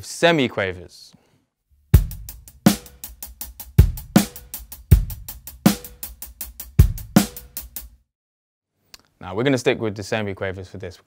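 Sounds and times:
kick drum: 2.0 - 2.9, 3.7 - 5.9, 6.8 - 7.3
hi-hat: 2.0 - 8.0.

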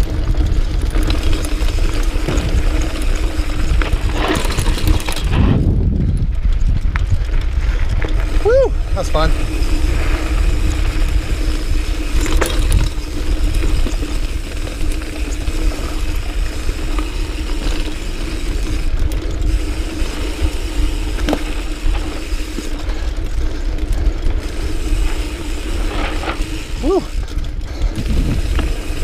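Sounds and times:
freewheel buzzing: 0.0 - 29.0
tyre and wind rumble: 0.0 - 29.0
bike knocking over rocks: 0.4 - 8.4.

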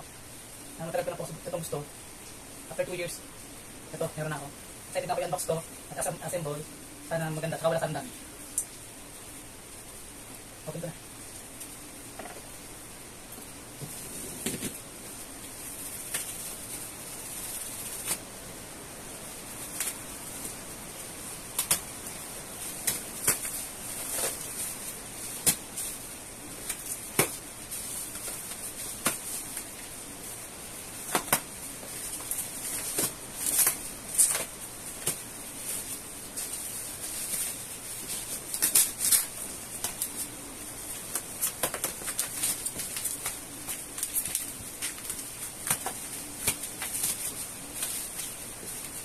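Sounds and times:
plastic wrap crinkling and tearing: 13.8 - 18.4, 19.1 - 49.0.

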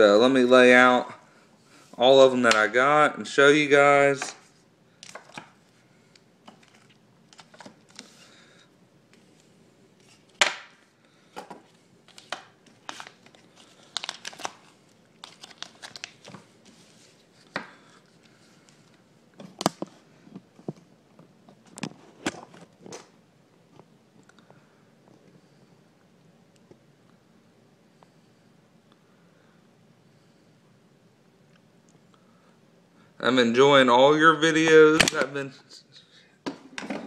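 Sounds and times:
plastic coin sleeves crinkling: 12.0 - 18.8.

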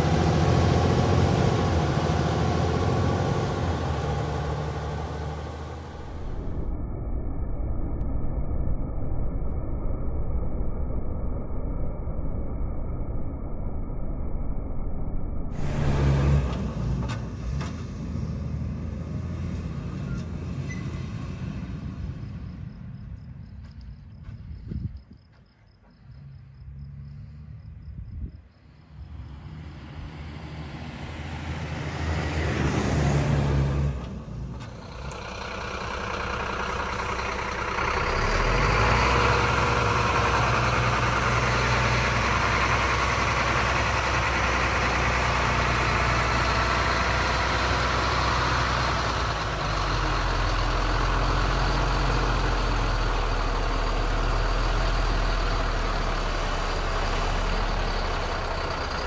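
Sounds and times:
diesel truck engine under load: 0.0 - 6.8, 15.5 - 24.9, 29.0 - 59.0
rushing noise: 0.0 - 17.5.

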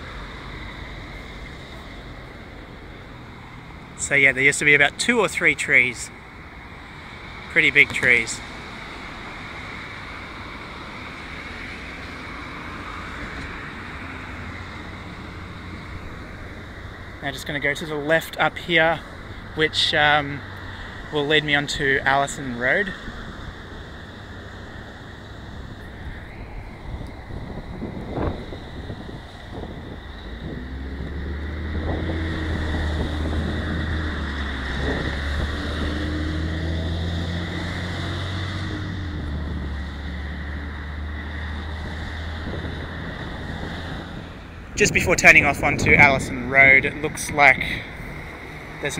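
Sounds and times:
road traffic passing: 0.0 - 48.9
wind rumbling on microphone: 22.3 - 48.9.

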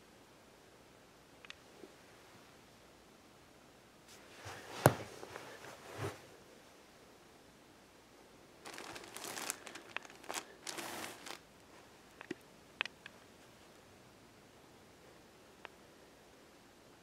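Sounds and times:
plastic wrapper crinkling: 8.6 - 11.4.

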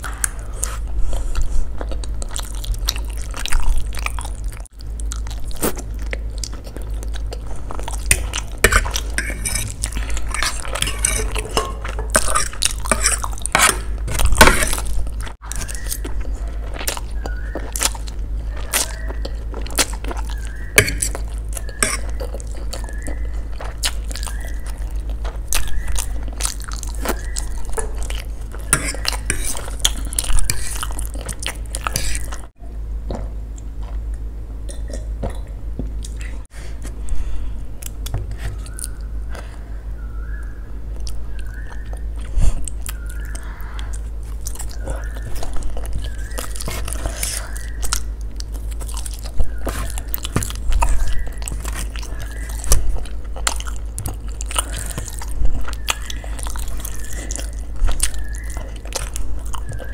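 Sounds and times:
chewing noodles close up: 0.0 - 32.6, 40.3 - 59.9.

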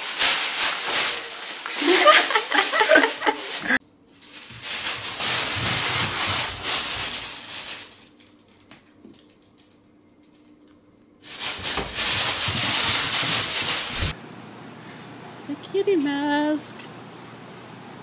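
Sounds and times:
plastic bag rustling and crinkling: 0.0 - 9.8, 11.2 - 14.2.

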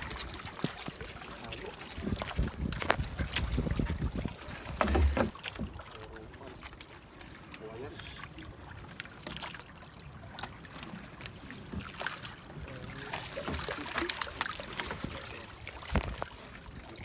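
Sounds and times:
trap frame knocking against boat: 4.7 - 5.7
water streaming off a fish trap: 11.7 - 17.0.

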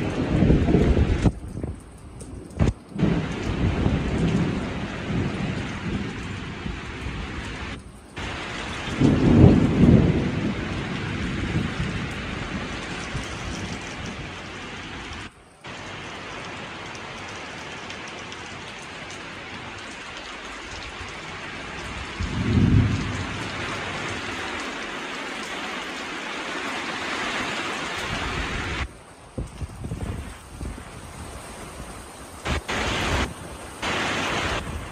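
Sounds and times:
thunder rumbling: 0.0 - 15.8, 21.7 - 24.4, 32.5 - 34.9
heavy rain falling: 0.0 - 34.9.

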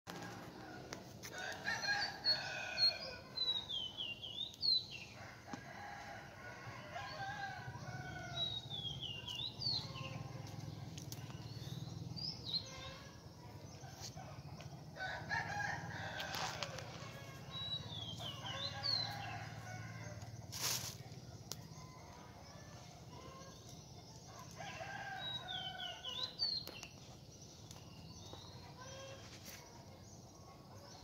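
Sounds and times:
rooster crowing: 0.2 - 3.3, 15.0 - 17.0.

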